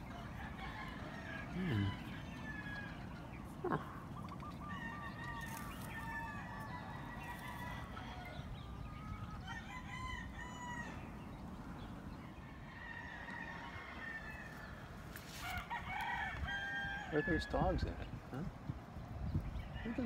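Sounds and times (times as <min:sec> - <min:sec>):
rooster crowing: 0:00.0 - 0:03.8, 0:04.6 - 0:11.1, 0:12.7 - 0:17.8
chickens clucking: 0:00.0 - 0:16.0.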